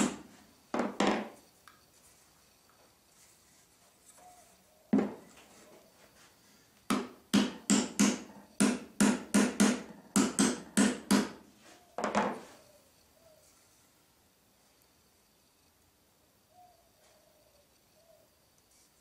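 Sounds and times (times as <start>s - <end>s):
hammer striking wooden wedges: 0.0s - 1.3s, 6.9s - 11.4s.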